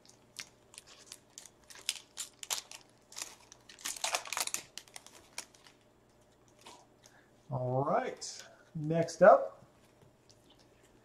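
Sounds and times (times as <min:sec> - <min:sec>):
foil wrapper tearing and crinkling: 0:00.0 - 0:05.8.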